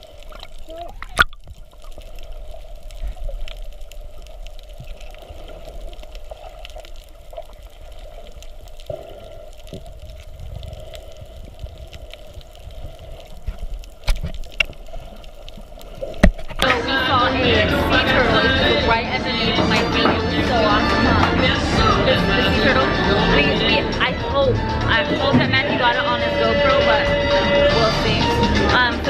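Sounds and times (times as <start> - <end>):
small underwater clicks: 0.0 - 16.8
muffled underwater rush: 0.0 - 29.0.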